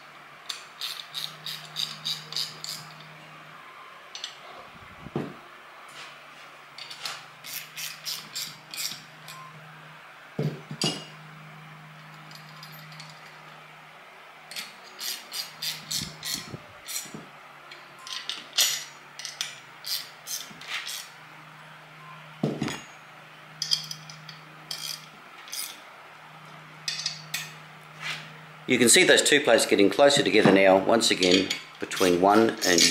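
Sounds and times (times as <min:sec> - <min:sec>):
low steady hum: 0:00.0 - 0:32.9
metal spanner clicking: 0:00.4 - 0:03.1, 0:06.8 - 0:09.4, 0:14.5 - 0:17.1, 0:17.7 - 0:21.1, 0:23.6 - 0:25.8, 0:26.9 - 0:27.6, 0:31.2 - 0:32.9.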